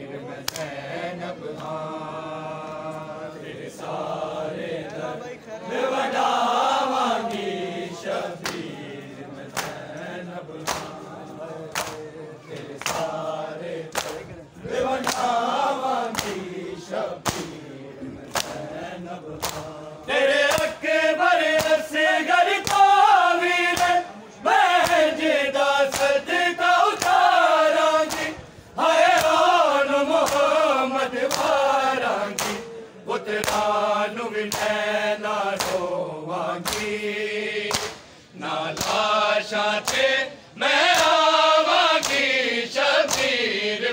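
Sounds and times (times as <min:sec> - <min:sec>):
men chanting a lament: 0:00.0 - 0:43.9
hands slapping chests: 0:00.4 - 0:00.8, 0:08.4 - 0:08.7, 0:09.5 - 0:10.0, 0:10.6 - 0:11.0, 0:11.6 - 0:13.2, 0:13.9 - 0:14.3, 0:14.9 - 0:16.5, 0:17.2 - 0:17.6, 0:18.2 - 0:19.8, 0:20.4 - 0:20.8, 0:21.4 - 0:21.9, 0:22.5 - 0:23.0, 0:23.6 - 0:24.0, 0:24.8 - 0:25.2, 0:25.8 - 0:26.2, 0:26.9 - 0:27.4, 0:28.0 - 0:28.4, 0:29.1 - 0:29.5, 0:30.2 - 0:30.6, 0:31.2 - 0:31.6, 0:32.2 - 0:32.7, 0:33.4 - 0:33.8, 0:34.5 - 0:34.9, 0:35.6 - 0:35.9, 0:36.6 - 0:37.0, 0:37.6 - 0:38.1, 0:38.7 - 0:39.1, 0:39.8 - 0:40.2, 0:40.8 - 0:42.4, 0:43.0 - 0:43.4.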